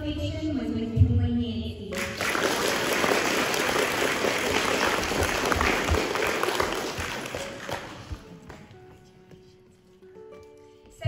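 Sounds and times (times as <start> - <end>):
music: 0.0 - 11.0
audience applauding: 1.9 - 8.7.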